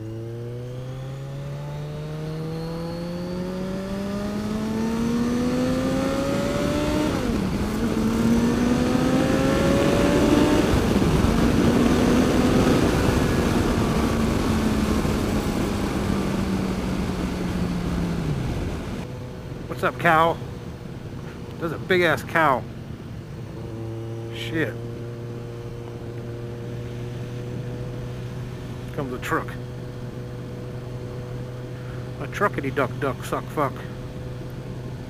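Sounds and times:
motorcycle engine accelerating: 0.0s - 35.0s
rushing wind noise: 5.6s - 19.7s.

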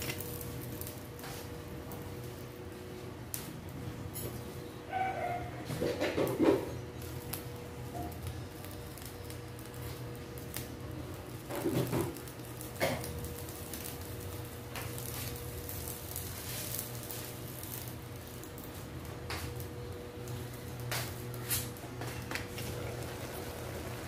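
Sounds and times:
steady low hum: 0.0s - 24.0s
food simmering in a pan: 5.7s - 24.0s.

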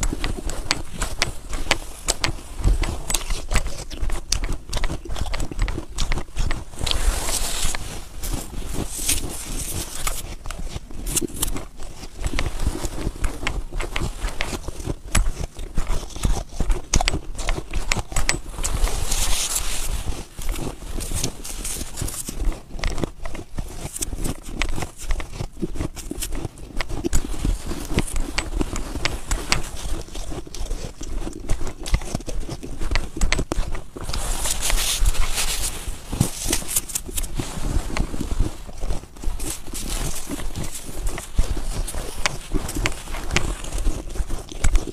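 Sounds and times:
snow being chewed: 0.0s - 44.9s.

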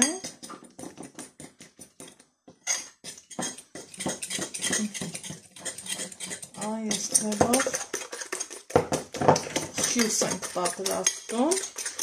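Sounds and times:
fork clinking against bowl: 2.6s - 8.6s, 9.4s - 12.0s.

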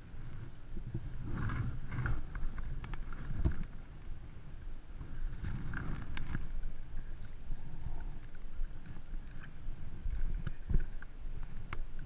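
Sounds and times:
wind buffeting microphone: 0.0s - 12.0s
fishing reel clicks and knocks: 5.9s - 12.0s.

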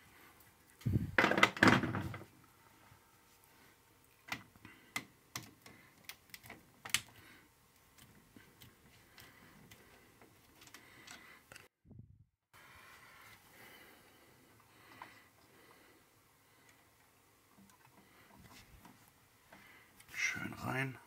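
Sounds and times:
small clicks and taps of hand work: 4.1s - 7.2s, 7.8s - 11.7s.

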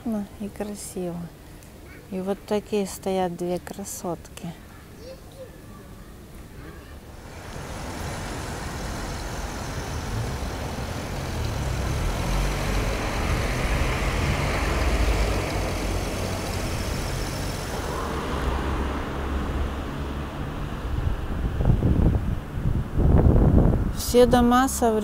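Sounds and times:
cars driving past: 7.1s - 23.9s.

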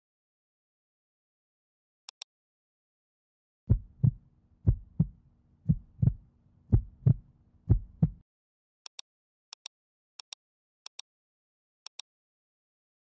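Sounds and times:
heartbeat: 3.7s - 8.2s.

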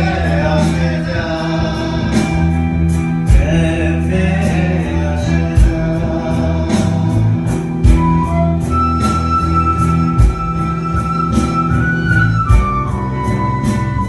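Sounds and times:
man singing: 0.0s - 8.6s
live band playing: 0.0s - 14.0s
flute long high note: 7.9s - 14.0s.

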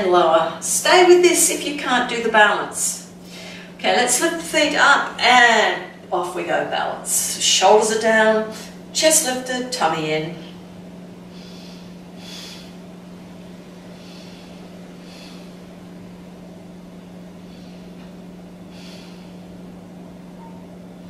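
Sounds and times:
low steady hum: 0.0s - 21.0s
woman breathing softly: 11.2s - 12.9s, 13.7s - 15.8s, 17.3s - 19.6s.

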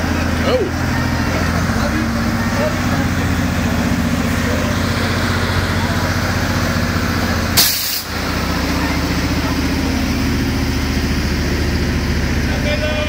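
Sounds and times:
heavy vehicle engine idling: 0.0s - 13.0s
air brakes hiss: 7.6s - 8.1s.

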